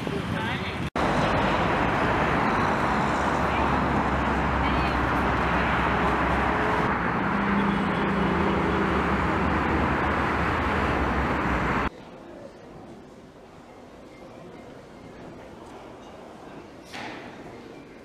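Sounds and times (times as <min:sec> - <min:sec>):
road traffic hum: 0:00.0 - 0:11.9.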